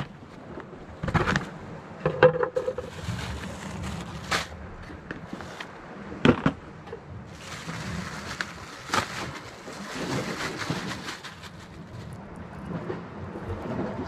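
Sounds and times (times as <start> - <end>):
plastic bag crinkling: 2.6 - 4.6, 7.3 - 12.2.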